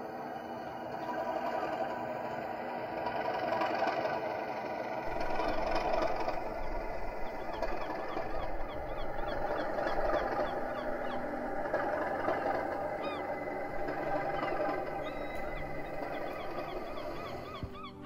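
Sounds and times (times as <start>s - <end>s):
diesel locomotive engine running: 0.0s - 18.0s
gulls calling: 0.0s - 18.0s
deep rumble: 5.0s - 18.0s.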